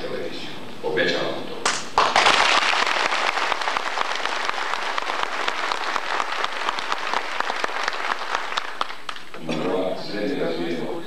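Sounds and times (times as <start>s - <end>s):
audience applauding: 1.7s - 9.4s.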